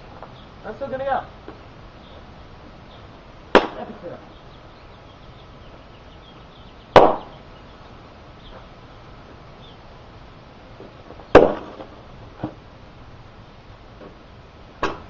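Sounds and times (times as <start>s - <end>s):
golf club hitting soda cans: 3.5s - 4.0s.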